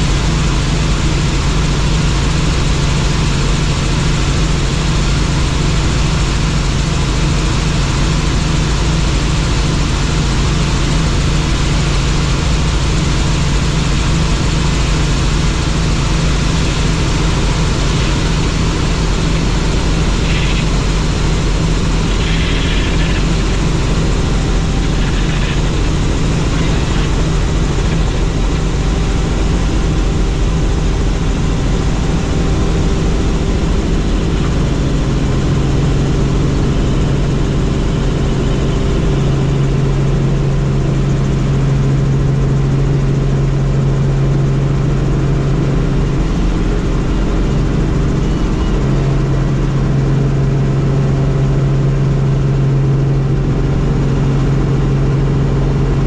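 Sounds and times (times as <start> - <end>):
deep constant hum: 0.0 - 56.0
helicopter engine and rotor: 0.0 - 56.0.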